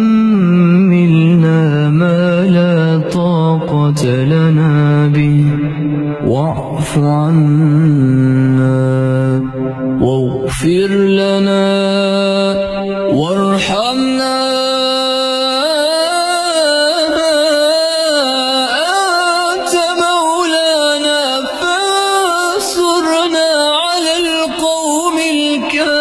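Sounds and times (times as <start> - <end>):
man reciting melodically: 0.0 - 26.0.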